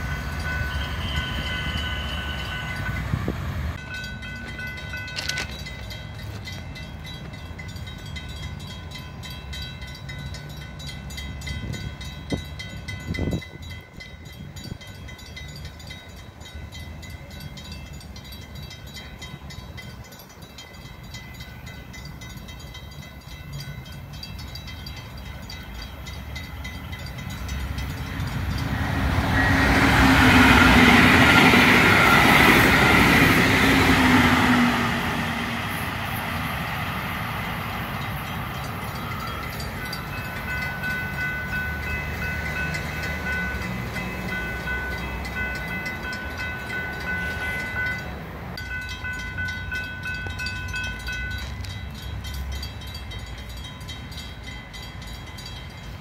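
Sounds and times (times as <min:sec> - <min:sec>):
crossing signal warning tone: 0:00.0 - 0:08.7, 0:21.1 - 0:35.6
passenger train passing: 0:00.0 - 0:56.0.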